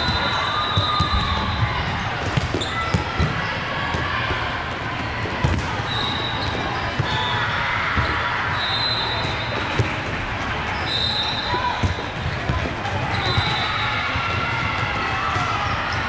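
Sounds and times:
murmur of voices: 0.0s - 16.0s.

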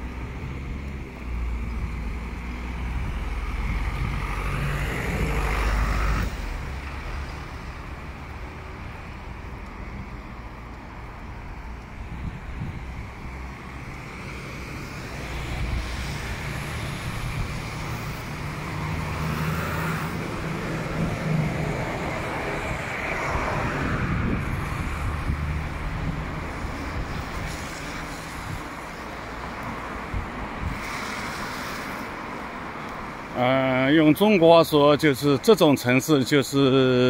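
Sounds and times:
traffic engines: 0.0s - 37.0s
tyre hiss on wet road: 0.1s - 12.4s, 13.2s - 22.2s, 24.5s - 33.4s
wind buffeting microphone: 1.6s - 6.8s, 11.2s - 14.2s, 20.1s - 31.4s
vehicle passing close: 2.5s - 8.3s, 13.3s - 29.0s.

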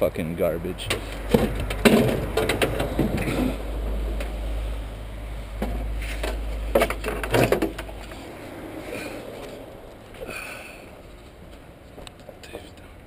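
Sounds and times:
low steady rumble: 0.0s - 12.2s
thumps: 0.9s - 3.6s
scrap metal clunking: 0.9s - 4.4s.

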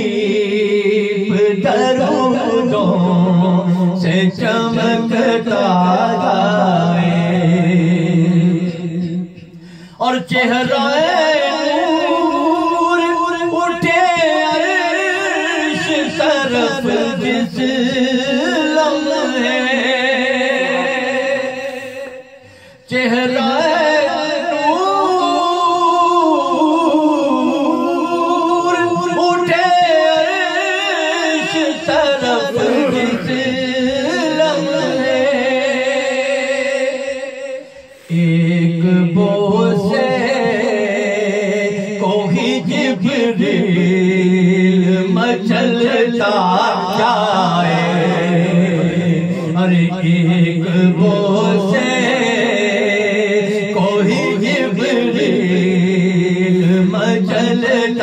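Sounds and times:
man singing into a microphone: 0.0s - 58.0s.

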